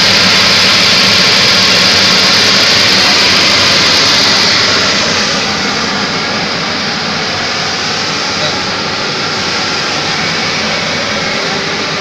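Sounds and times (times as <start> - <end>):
machinery roar: 0.0 - 12.0.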